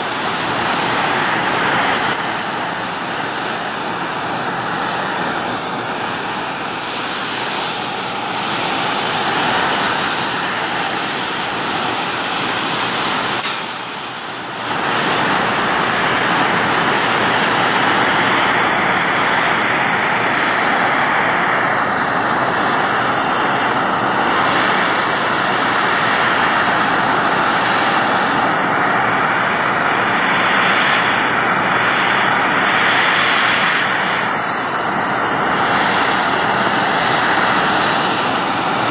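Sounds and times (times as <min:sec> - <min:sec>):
gas torch flame roaring: 0:00.0 - 0:38.9
torch click: 0:13.3 - 0:13.8.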